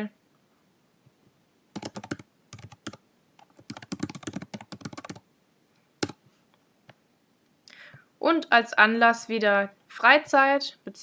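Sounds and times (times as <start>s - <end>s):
keyboard typing: 1.8s - 5.2s, 6.0s - 6.2s.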